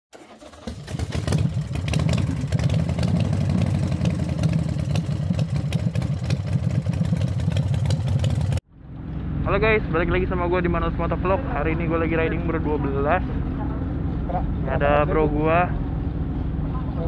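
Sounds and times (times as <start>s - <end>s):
motorcycle engine idling: 0.4s - 10.2s.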